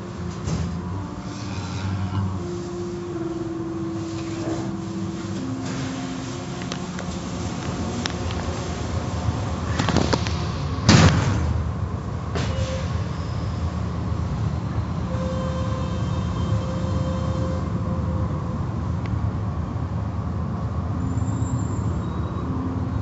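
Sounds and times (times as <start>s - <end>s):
car wash water spray and brushes: 3.8s - 10.8s.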